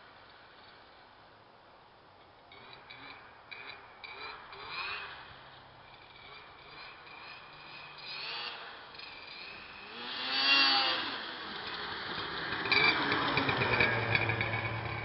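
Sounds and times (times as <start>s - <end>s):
snowmobile engine revving: 2.5s - 5.4s, 6.1s - 15.0s.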